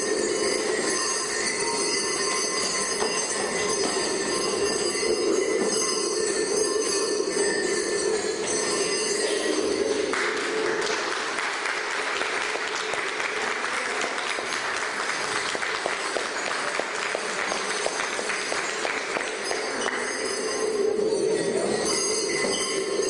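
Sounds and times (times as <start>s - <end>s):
audience applauding: 10.0s - 20.0s
lion dance percussion music: 12.0s - 23.0s.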